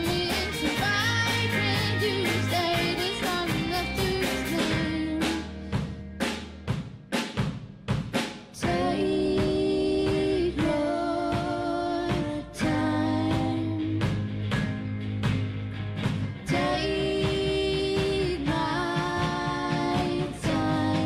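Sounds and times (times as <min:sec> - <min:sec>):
woman singing: 0:00.0 - 0:05.6, 0:08.6 - 0:14.3, 0:16.4 - 0:21.0
rock band playing: 0:00.0 - 0:06.8, 0:14.1 - 0:21.0
drum hits: 0:00.0 - 0:21.0.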